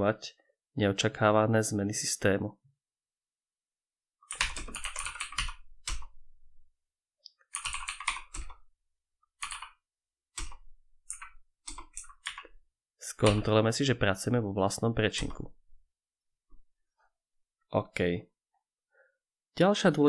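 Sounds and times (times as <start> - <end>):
keyboard typing: 4.2 - 6.2, 7.4 - 8.6, 9.4 - 12.6, 13.2 - 13.5.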